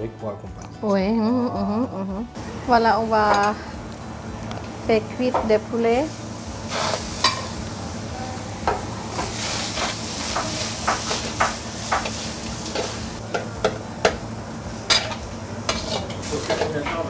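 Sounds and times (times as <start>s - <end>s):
chicken sizzling in a wok: 4.7s - 17.0s
metal ladle scraping wok: 6.7s - 7.6s, 14.9s - 16.7s.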